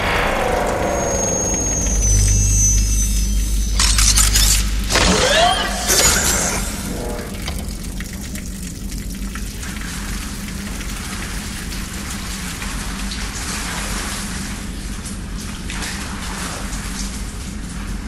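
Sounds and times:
low steady hum: 0.0s - 18.0s
liquid pouring and splashing: 4.7s - 18.0s.

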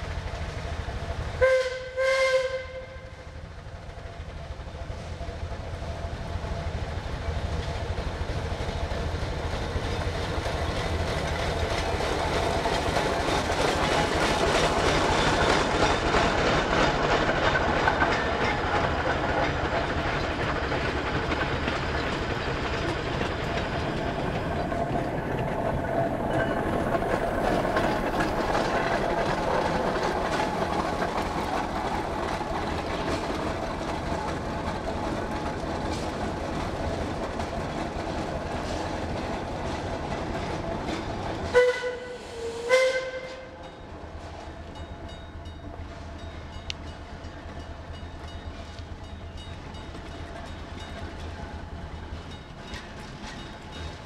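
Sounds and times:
steam locomotive clatter: 0.0s - 54.0s
steam whistle blasts: 1.4s - 3.2s, 41.5s - 43.6s.

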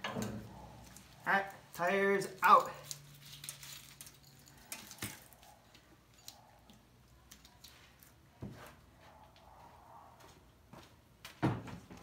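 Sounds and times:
handling rustles and clicks: 0.1s - 8.2s.

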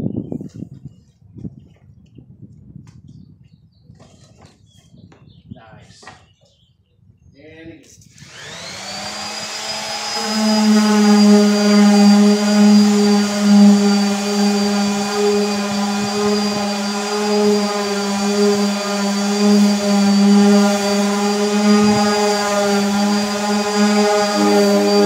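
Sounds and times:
electric sander sanding wood: 8.1s - 25.0s.

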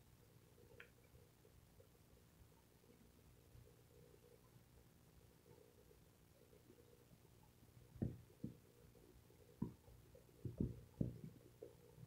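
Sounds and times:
low steady hum: 0.0s - 12.0s
soft low thumps: 8.0s - 8.6s, 9.6s - 11.4s.

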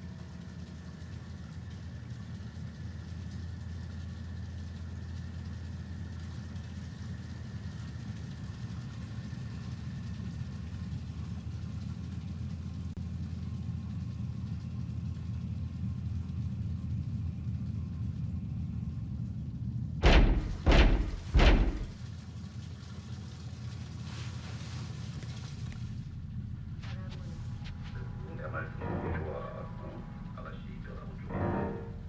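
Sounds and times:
low room hum: 0.0s - 32.0s
loud knocks on a door: 20.0s - 22.0s.

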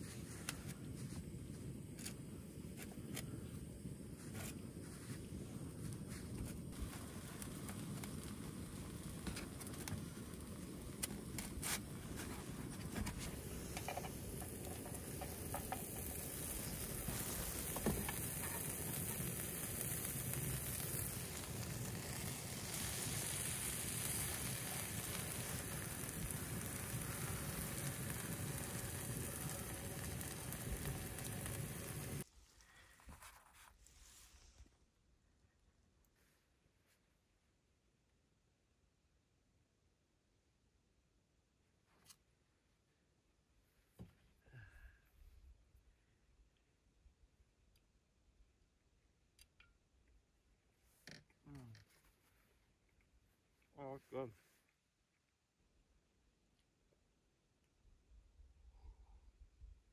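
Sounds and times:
food sizzling in a frying pan: 6.1s - 32.2s.

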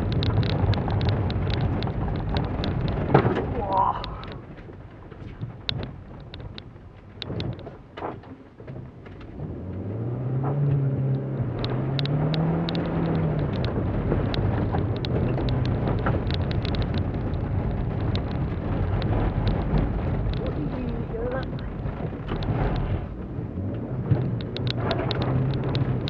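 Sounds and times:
tyres rumbling on loose surface: 0.0s - 26.0s
car engine accelerating: 8.6s - 26.0s.

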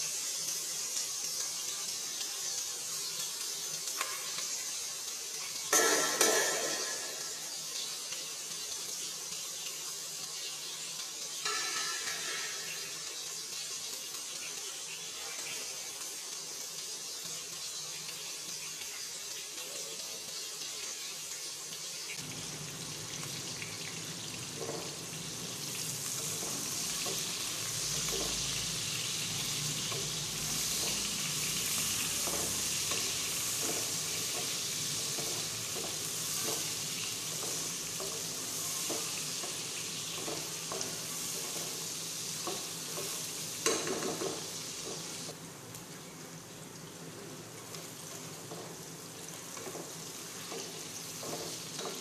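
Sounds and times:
onions sizzling in hot oil: 0.0s - 52.0s
spoon scraping and knocking on pan: 5.7s - 7.4s, 11.4s - 13.1s, 42.4s - 45.1s, 49.6s - 52.0s.

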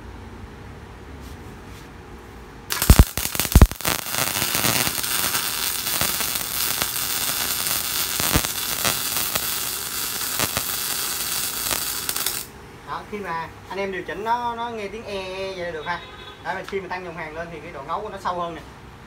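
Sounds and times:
welding arc crackling: 2.7s - 12.5s
welding arc popping: 2.7s - 12.5s.

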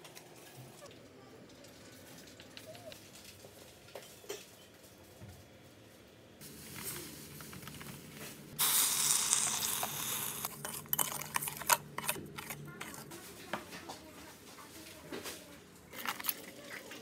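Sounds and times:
water pouring onto sugar: 8.6s - 10.5s.

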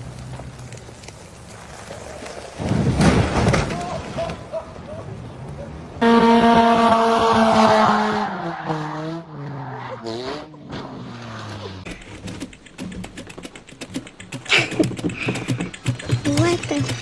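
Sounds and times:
sharp clicks or rattles: 11.9s - 17.0s.

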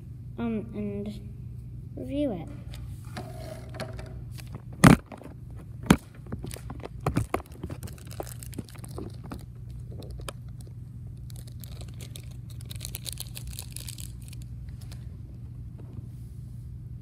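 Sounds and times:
plastic crinkling: 6.1s - 15.1s.

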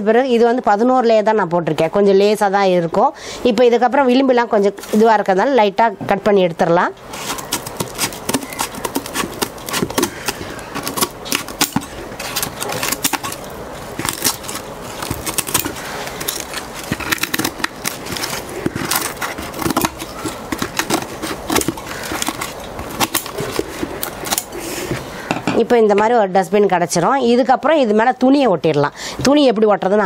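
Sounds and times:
scissors snipping stiff paper: 7.1s - 24.6s
paper rustling: 7.1s - 25.2s.

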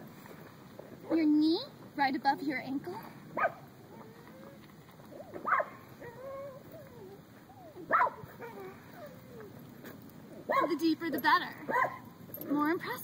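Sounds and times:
animal whining: 3.8s - 9.6s.

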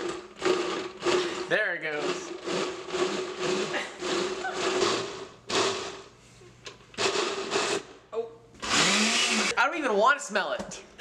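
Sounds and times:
blender churning food: 0.0s - 6.1s, 7.0s - 7.9s, 8.6s - 9.5s.

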